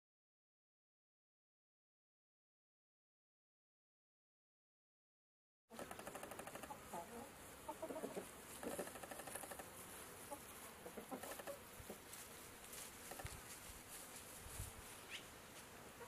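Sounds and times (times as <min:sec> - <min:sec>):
chickens clucking softly: 0:05.7 - 0:09.7, 0:10.3 - 0:12.1.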